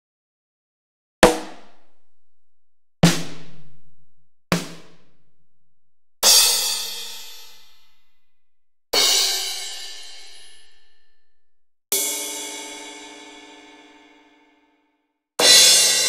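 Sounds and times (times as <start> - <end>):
drum hits: 1.2 - 1.8, 3.0 - 3.8, 4.5 - 5.0
cymbal crashes: 15.4 - 16.0.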